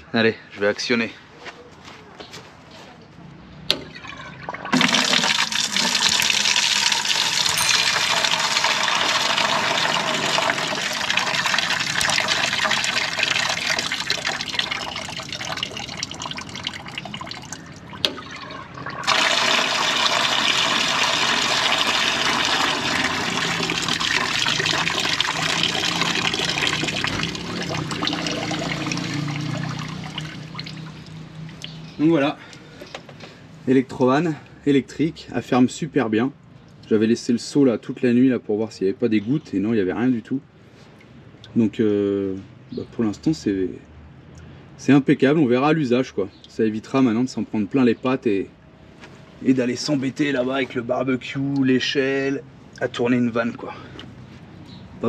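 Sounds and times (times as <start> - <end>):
water gushing onto ground: 3.9 - 31.8.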